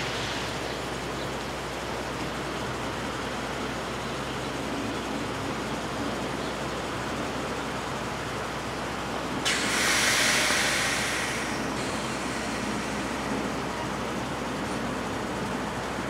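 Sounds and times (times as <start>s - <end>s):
train running noise: 0.0s - 16.0s
loud air hiss: 9.4s - 14.2s.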